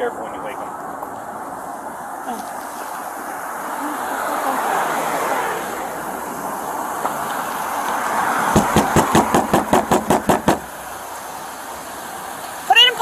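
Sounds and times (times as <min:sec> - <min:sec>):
traffic hum: 0:00.0 - 0:13.0
hard knocking on car window: 0:08.5 - 0:10.8.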